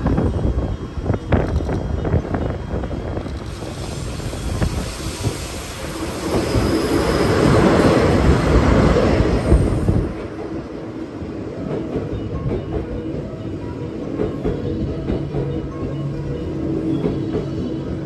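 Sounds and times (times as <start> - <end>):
diesel locomotive passing: 0.0 - 18.0
train wheels rolling: 0.0 - 18.0.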